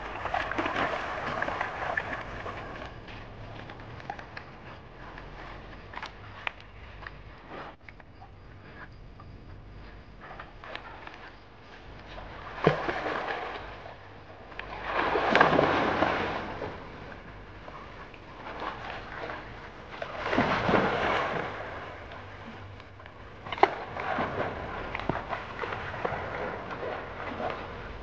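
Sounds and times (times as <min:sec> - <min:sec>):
dogs splashing in water: 0:00.0 - 0:06.5, 0:12.1 - 0:28.0.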